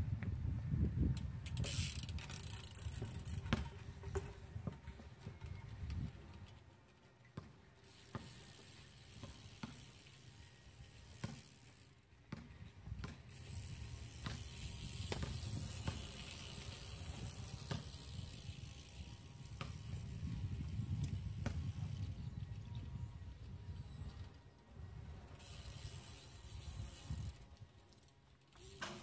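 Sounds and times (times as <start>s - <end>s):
bike freewheel ticking: 1.2s - 4.3s, 7.8s - 12.0s, 13.3s - 22.8s, 25.3s - 29.0s.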